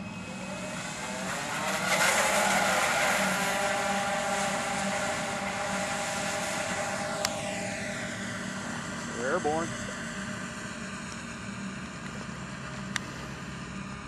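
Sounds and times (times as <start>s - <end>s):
electric motors and propellers whining: 0.0s - 14.0s
rush of water spray: 0.3s - 7.3s.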